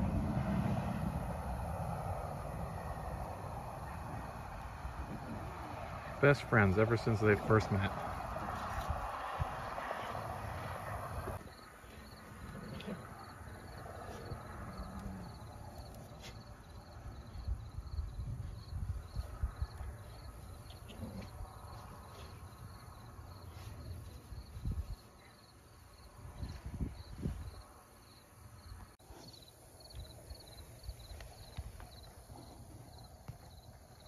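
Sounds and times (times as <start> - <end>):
insect chirping: 8.1 - 34.0.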